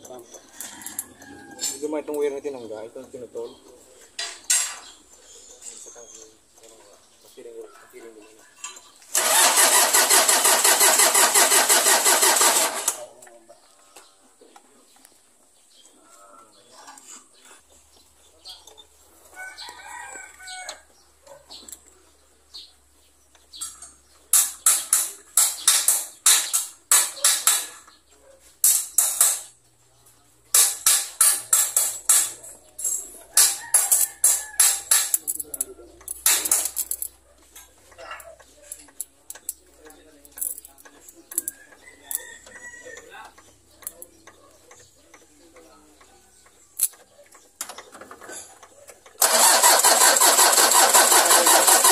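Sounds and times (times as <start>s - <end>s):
rooster crowing: 0.5s - 2.0s, 19.3s - 21.0s, 33.3s - 34.9s, 41.5s - 43.3s
loud sharp rattling: 9.1s - 13.1s, 24.3s - 27.8s, 28.6s - 29.6s, 30.5s - 35.4s, 36.1s - 37.1s, 49.2s - 51.9s
light metallic clicks of tools: 30.6s - 46.1s.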